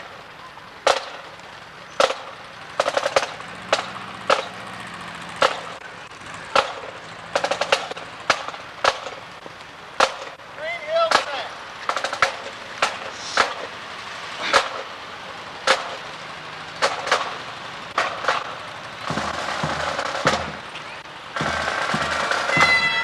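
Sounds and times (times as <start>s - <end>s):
sharp cracks: 0.8s - 4.7s, 5.3s - 13.8s, 14.4s - 15.0s, 15.6s - 16.2s, 16.8s - 20.7s
bagpipes: 21.4s - 23.0s.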